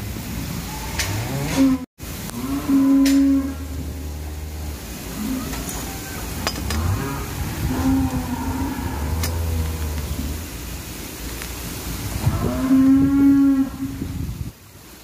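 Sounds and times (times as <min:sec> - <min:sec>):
cows mooing: 0:01.1 - 0:10.4, 0:12.2 - 0:14.0.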